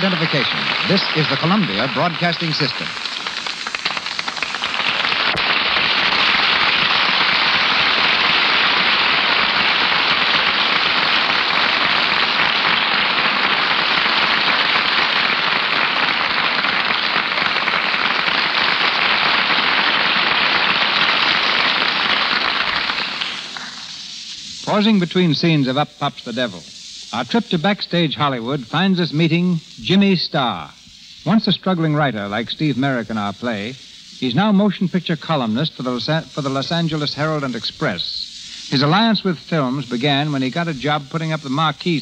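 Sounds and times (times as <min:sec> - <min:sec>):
old radio static hiss: 0:00.0 - 0:42.0.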